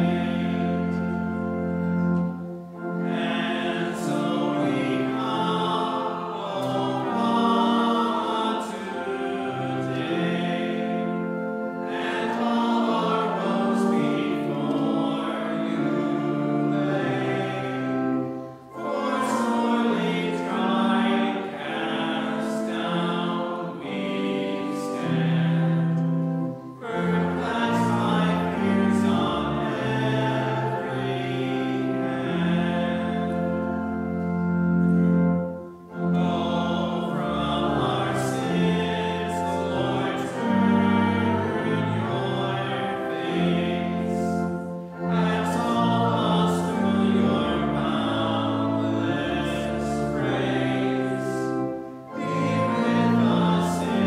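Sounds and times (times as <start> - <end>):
choir singing a hymn: 0.0 - 54.0
organ: 0.0 - 54.0.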